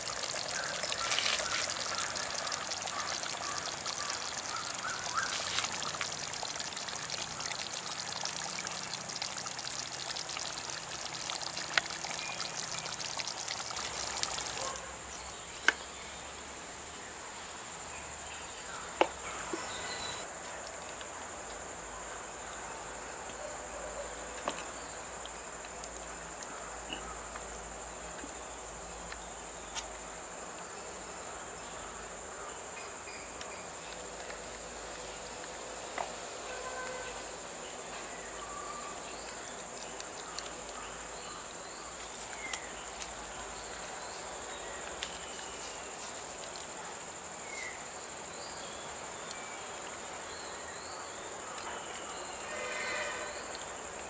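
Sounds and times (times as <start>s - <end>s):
high insect drone: 0.0s - 15.3s, 24.7s - 54.0s
curry bubbling in a pot: 0.0s - 15.4s.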